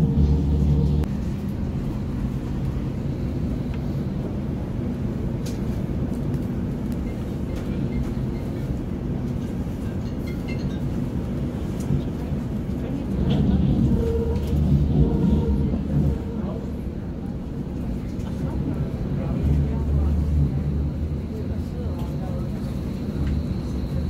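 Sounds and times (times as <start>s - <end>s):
moving train rumble: 0.0s - 24.0s.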